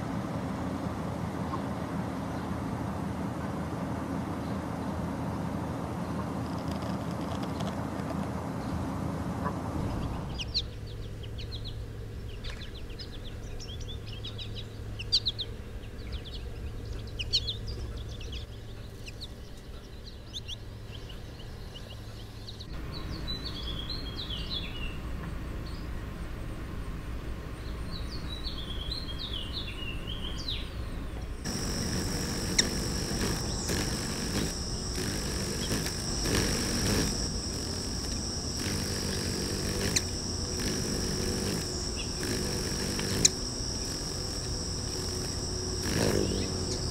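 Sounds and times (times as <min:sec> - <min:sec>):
whistled bird song: 0:10.0 - 0:25.0, 0:27.6 - 0:31.2
high insect trill: 0:31.4 - 0:46.9.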